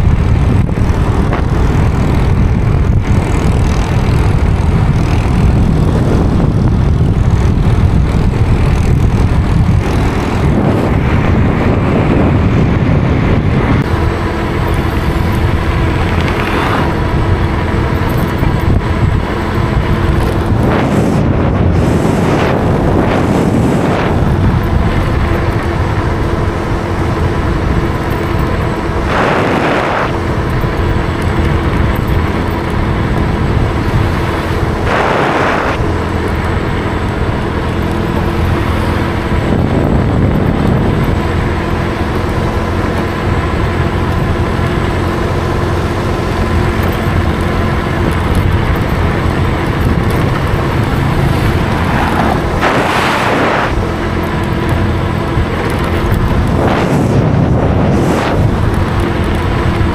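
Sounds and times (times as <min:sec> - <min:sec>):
engine and tyre rumble: 0:00.0 - 0:59.9
low hum: 0:00.0 - 0:59.9
vehicles passing: 0:00.0 - 0:59.9.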